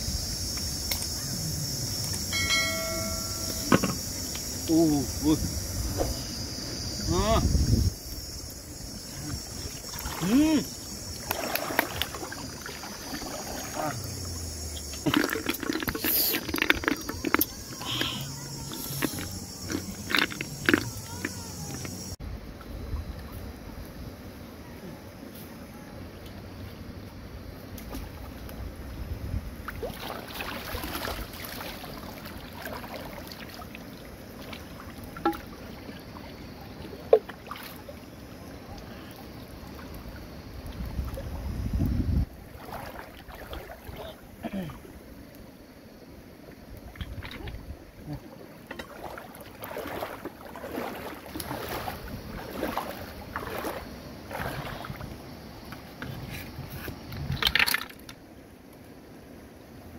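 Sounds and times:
water splashing and gurgling: 1.7 - 22.2, 27.8 - 58.4
leaves rustling and scraping: 49.4 - 58.1.

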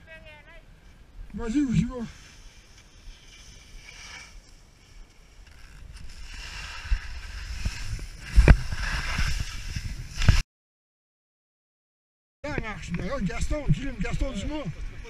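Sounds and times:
skis scraping through snow: 1.7 - 10.4.

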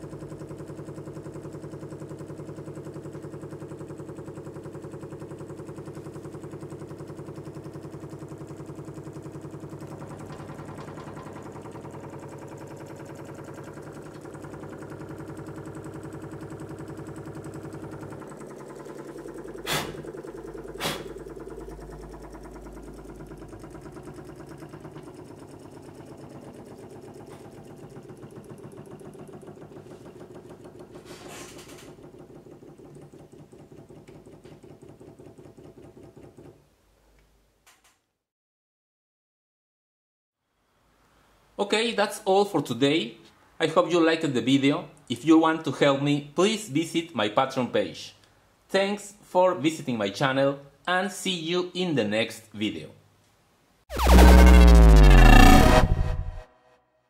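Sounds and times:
small engine rapid mechanical beat: 0.0 - 36.6.

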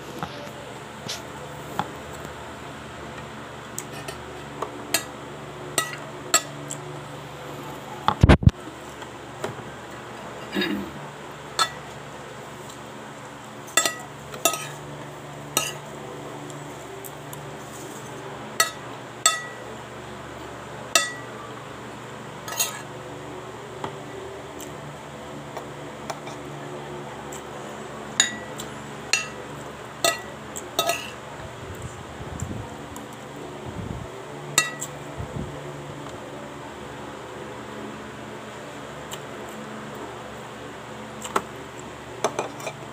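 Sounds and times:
low steady hum: 0.0 - 42.9
cutlery clinking on a plate: 13.7 - 14.8, 22.5 - 22.8, 30.0 - 31.2.

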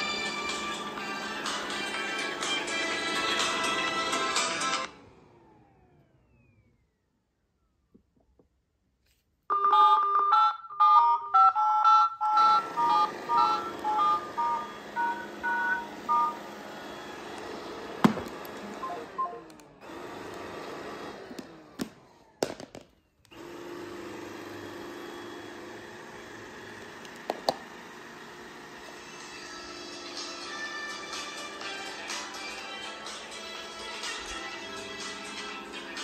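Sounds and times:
robot vacuum cleaner running: 0.0 - 7.1, 12.2 - 22.4, 23.3 - 36.0
clicks: 17.3 - 20.8
touch-tone keypad beeps: 18.8 - 19.4.

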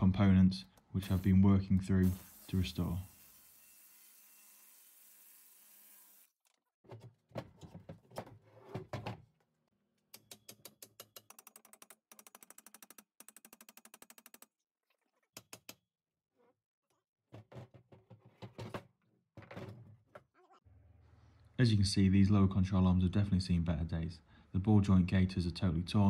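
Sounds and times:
socket ratchet clicking: 10.2 - 14.5.

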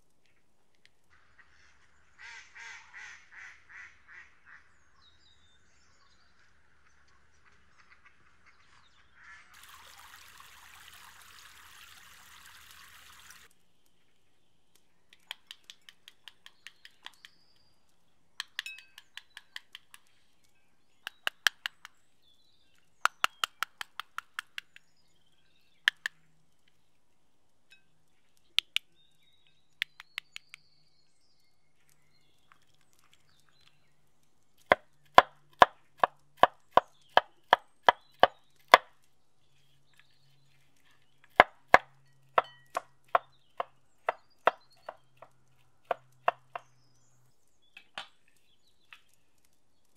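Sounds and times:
running stream water: 9.5 - 13.5.

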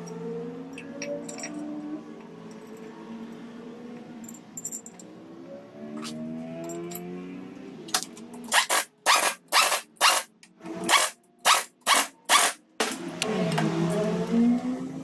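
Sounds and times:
pneumatic impact wrench bursts: 8.5 - 10.3, 10.9 - 13.0.

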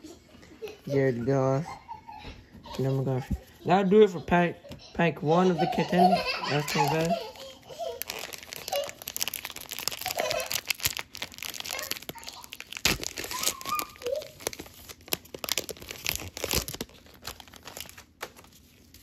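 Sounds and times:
plastic wrapper crinkling: 6.4 - 19.0.

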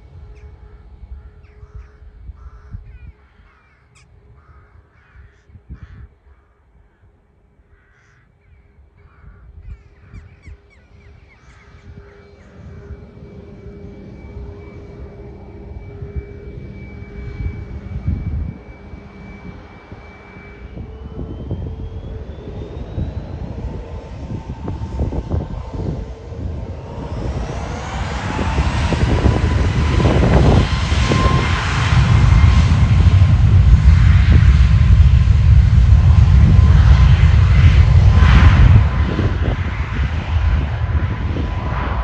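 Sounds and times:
high whine rising in pitch: 0.0 - 4.4, 9.8 - 42.0
aircraft engines running: 0.0 - 42.0
crows cawing: 0.6 - 12.6.

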